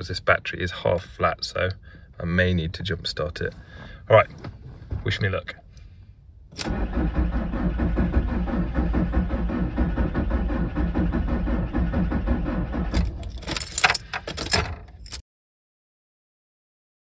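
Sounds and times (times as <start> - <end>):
starter motor cranking diesel engine: 6.6 - 14.8
clicks and rattles: 12.9 - 15.2.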